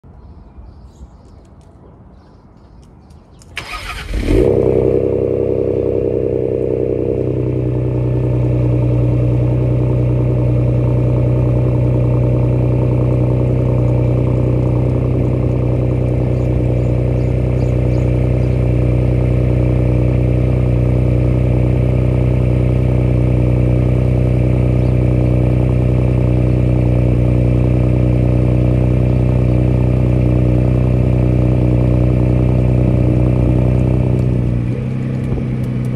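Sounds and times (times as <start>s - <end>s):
car engine starting and idling: 3.5s - 35.9s
engine cranking: 3.6s - 4.5s.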